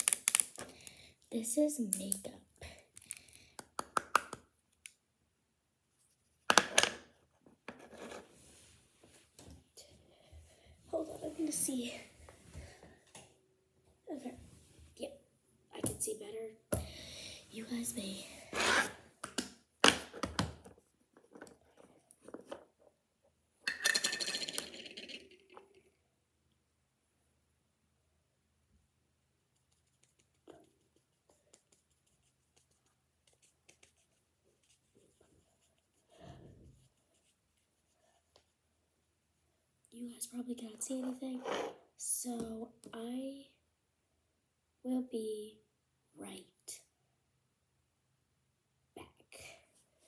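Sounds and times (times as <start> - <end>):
small hard objects clicking: 0.0 - 0.7.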